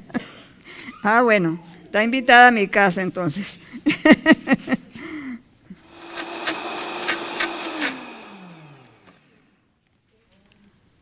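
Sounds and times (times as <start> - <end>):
blender motor blending: 5.8 - 9.5.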